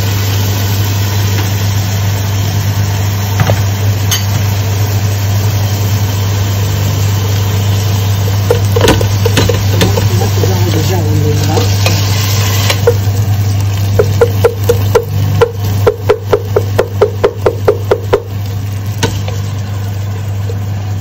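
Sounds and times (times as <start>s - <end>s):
steady low hum: 0.0s - 21.0s
wooden spoon tapping a metal pot: 8.5s - 10.4s, 13.9s - 18.3s.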